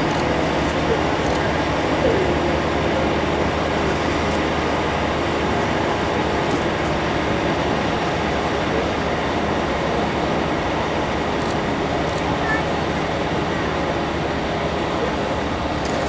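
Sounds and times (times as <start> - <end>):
locomotive droning: 0.0 - 16.0.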